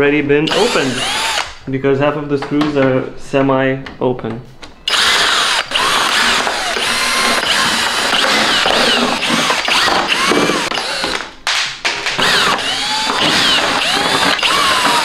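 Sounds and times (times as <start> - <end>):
cordless drill motor whining: 0.5 - 1.6, 4.9 - 11.2, 12.2 - 15.0.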